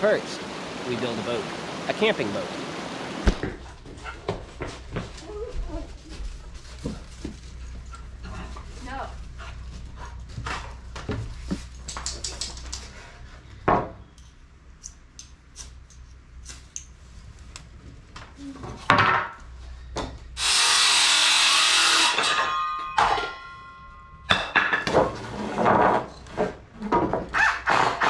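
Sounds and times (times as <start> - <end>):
wooden boards clattering on concrete: 18.6 - 20.2, 24.3 - 27.4
ringing tones: 22.1 - 24.6.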